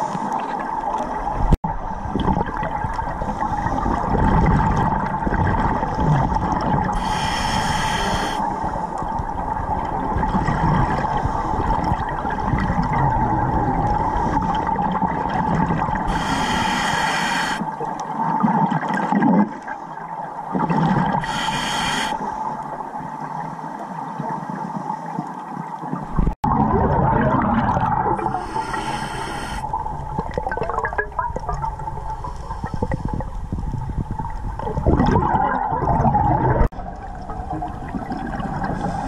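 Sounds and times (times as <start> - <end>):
regulator bubbling hiss: 6.8 - 8.4, 16.0 - 17.7, 21.1 - 22.5, 27.9 - 35.3.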